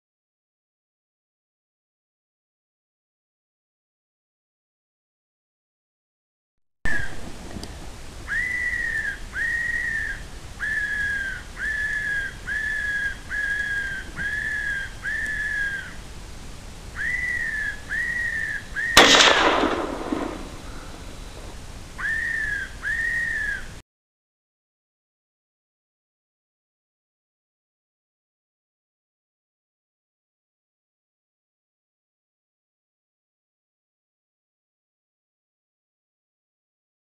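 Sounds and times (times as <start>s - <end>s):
electronic fox whistle call: 8.3s - 15.8s, 17.0s - 23.6s
rifle shot: 18.9s - 21.5s.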